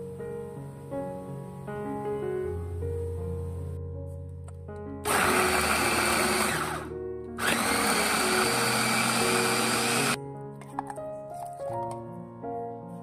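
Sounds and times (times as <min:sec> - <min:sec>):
electric food chopper whirring: 0:05.0 - 0:10.2.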